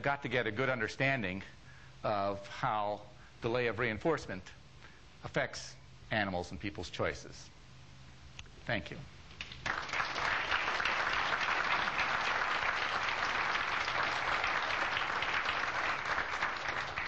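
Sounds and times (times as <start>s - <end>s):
audience applause: 9.4s - 17.0s.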